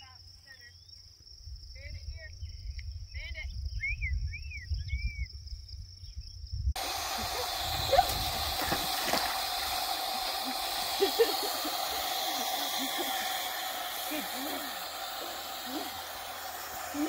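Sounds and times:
crickets trilling: 0.0s - 17.0s
wind rumbling on microphone: 1.4s - 9.9s
dogs splashing in water: 6.8s - 17.0s
steady hiss: 6.8s - 17.0s.

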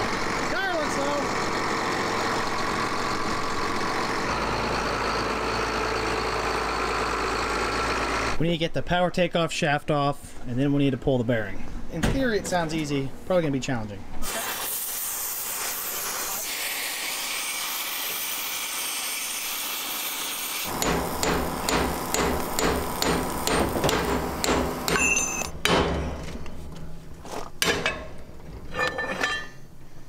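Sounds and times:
steady hiss: 14.3s - 20.7s
hammer striking metal shaft: 20.7s - 26.4s.

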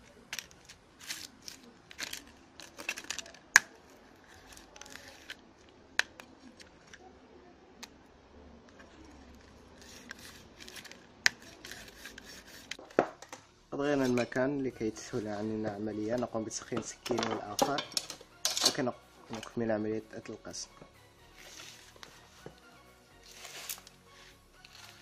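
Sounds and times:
knife blade scraping phone: 9.8s - 12.8s.

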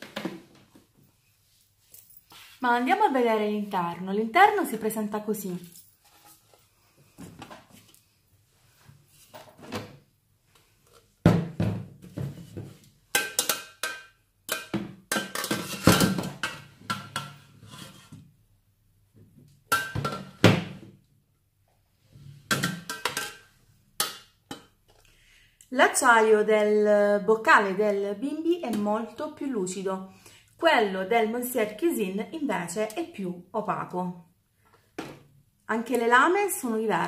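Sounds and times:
metal jugs knocking and clanking: 11.3s - 17.4s, 19.7s - 20.8s.

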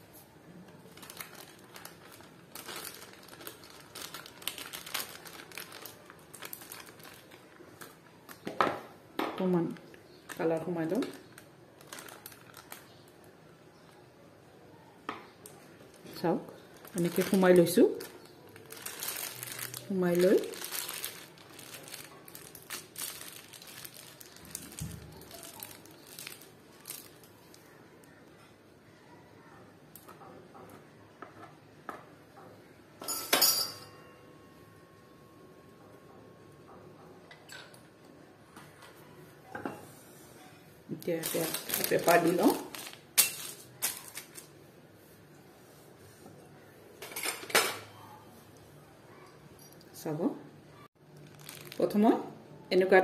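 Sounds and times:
plastic piping bag crinkling: 0.0s - 8.5s, 9.6s - 14.0s, 15.4s - 28.2s, 40.9s - 45.9s, 51.0s - 52.3s.

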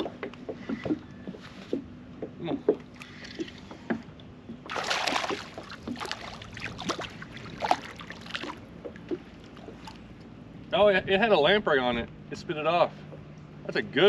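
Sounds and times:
fish splashing at surface: 4.7s - 8.6s.

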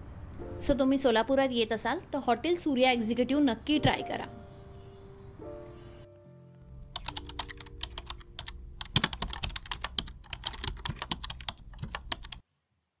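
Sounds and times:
keyboard typing clicks: 6.9s - 12.4s.

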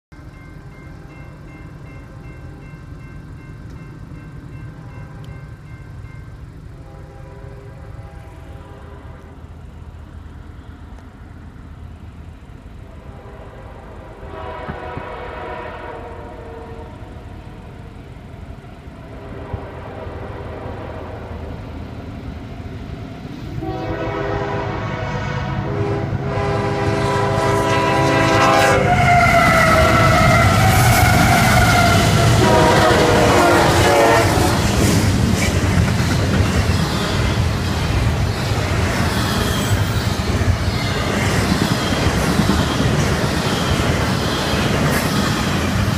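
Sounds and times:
rumble of engine and wheels: 0.1s - 45.9s
locomotive horn: 6.8s - 9.6s, 12.9s - 17.6s, 19.1s - 21.6s, 23.6s - 34.8s.

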